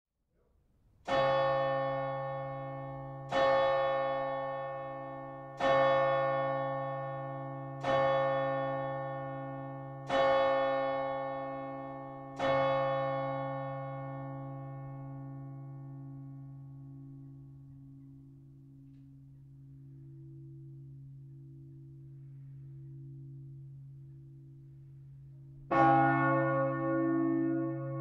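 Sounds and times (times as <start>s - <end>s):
large church bell striking: 1.1s - 28.0s.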